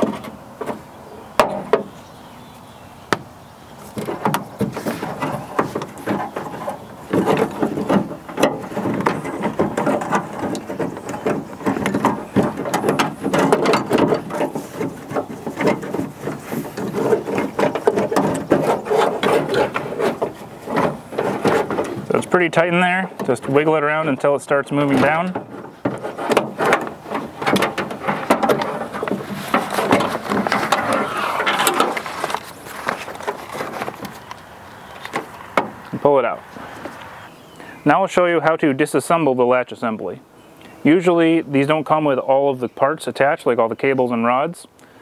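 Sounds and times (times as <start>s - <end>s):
plastic and metal rattling in door: 0.0s - 2.0s, 3.9s - 34.3s.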